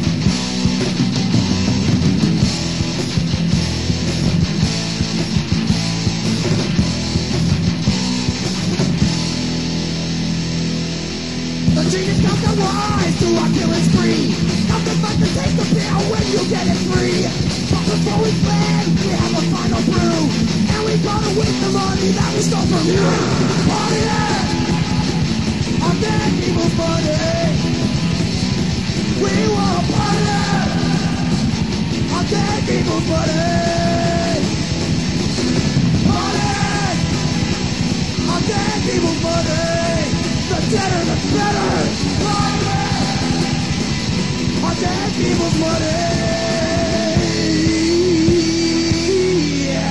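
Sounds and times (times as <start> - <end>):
punk rock band playing: 0.0 - 49.9
yelled vocals: 11.7 - 49.9.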